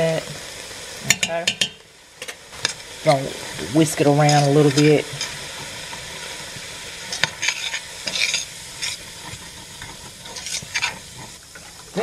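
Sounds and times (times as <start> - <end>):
food sizzling in oil: 0.0 - 12.0
utensil scraping pot: 7.0 - 12.0.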